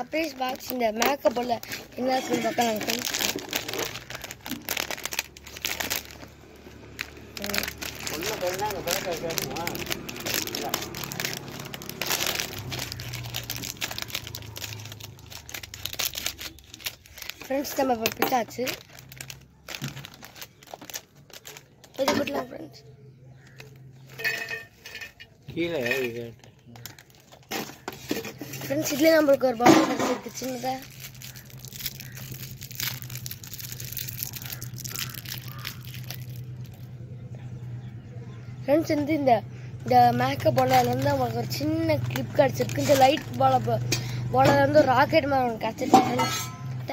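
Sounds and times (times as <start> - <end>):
plastic wrapper crinkling and tearing: 0.0 - 24.2, 26.2 - 37.0, 39.9 - 46.3.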